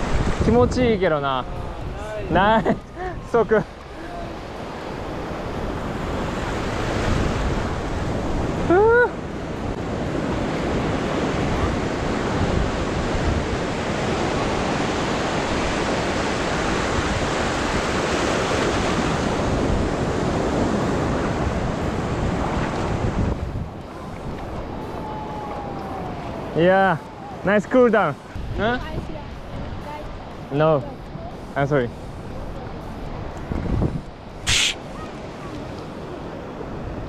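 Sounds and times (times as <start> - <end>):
wind buffeting microphone: 0.0 - 26.6, 28.3 - 37.0
waves breaking on beach: 0.0 - 37.0
loud rising call: 34.5 - 34.9.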